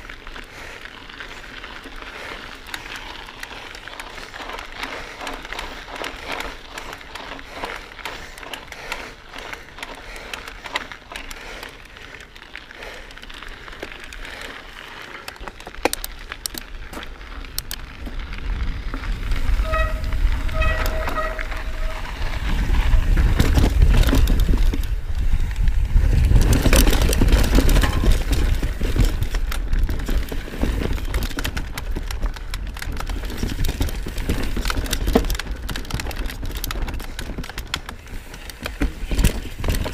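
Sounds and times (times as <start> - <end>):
bike rattling: 0.0 - 39.9
bike tyres rolling over gravel: 0.0 - 39.9
wind buffeting microphone: 18.0 - 39.9
short broken squeal: 19.6 - 22.2.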